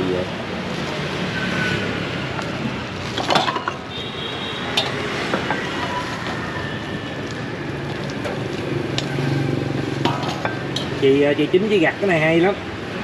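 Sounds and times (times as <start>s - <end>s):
street background noise: 0.0s - 13.0s
knocks and clatters of serving: 3.2s - 3.9s, 4.8s - 6.4s, 10.0s - 11.0s.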